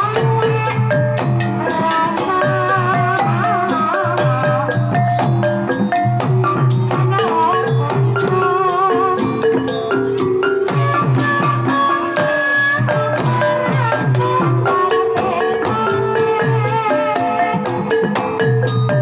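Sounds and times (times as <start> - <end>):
mallet-struck metal keys: 0.1 - 19.0
woman singing wavering line: 6.8 - 17.9.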